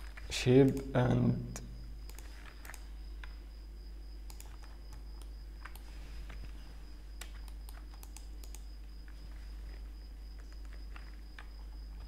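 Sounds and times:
faint high whine: 0:00.0 - 0:12.0
low electrical hum: 0:00.0 - 0:12.0
mouse clicks: 0:02.1 - 0:02.9, 0:04.3 - 0:05.9, 0:07.2 - 0:08.7.

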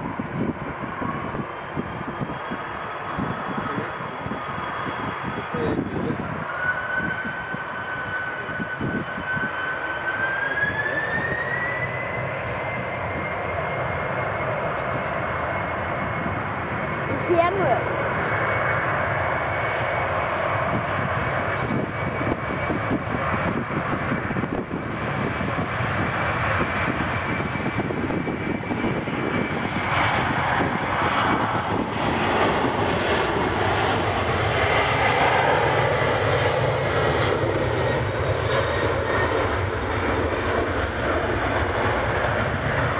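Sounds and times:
jet engines at take-off thrust: 0:00.0 - 0:42.9.

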